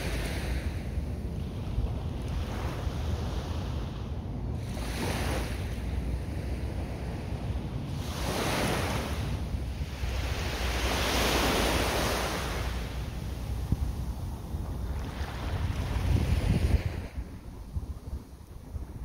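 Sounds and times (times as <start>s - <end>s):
small waves breaking on beach: 0.0s - 19.0s
wind rumble on microphone: 0.0s - 19.0s.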